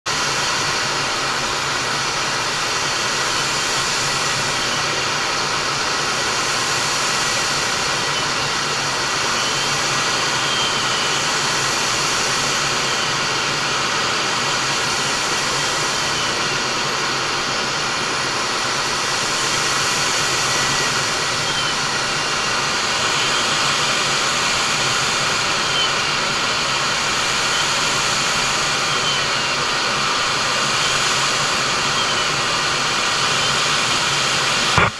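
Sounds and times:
high-pitched whine: 0.1 - 34.9
jet engine cockpit noise: 0.1 - 34.9.

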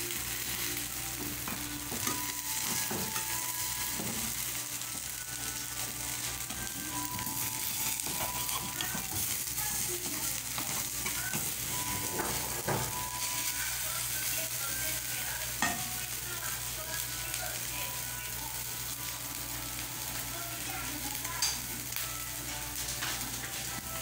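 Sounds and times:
omelette sizzling in a frying pan: 0.0 - 24.0
spoon scraping and clicking on pan: 7.2 - 9.4, 10.6 - 11.5.

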